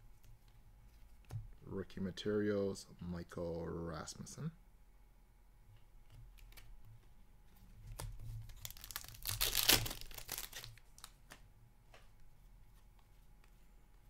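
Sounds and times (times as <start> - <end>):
plastic crinkling: 7.9 - 11.3.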